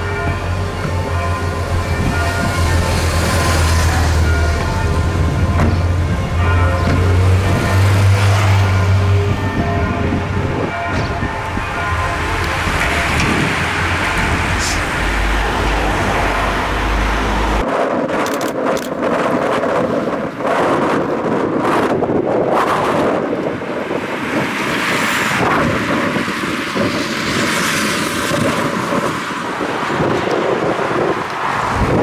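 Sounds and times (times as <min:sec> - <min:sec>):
heavy low rumble: 0:00.0 - 0:23.2
passing vehicles: 0:00.0 - 0:32.0
wind noise on microphone: 0:00.8 - 0:32.0.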